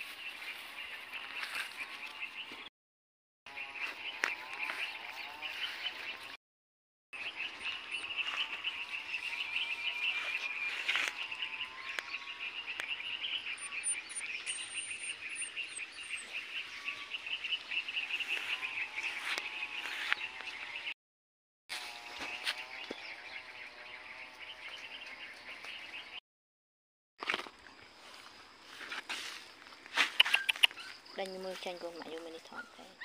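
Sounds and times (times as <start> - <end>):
short high bird chirps: 30.0 - 30.9.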